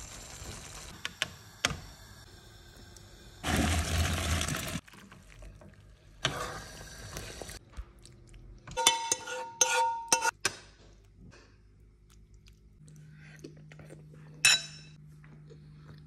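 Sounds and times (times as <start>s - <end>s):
metal spoon scraping frying pan: 8.8s - 10.4s.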